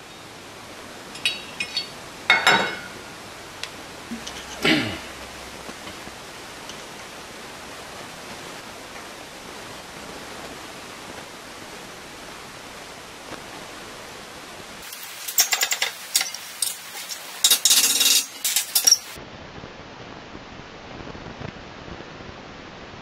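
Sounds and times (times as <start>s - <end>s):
background hiss: 0.0s - 19.2s
metallic clicks and scraping: 14.8s - 19.2s.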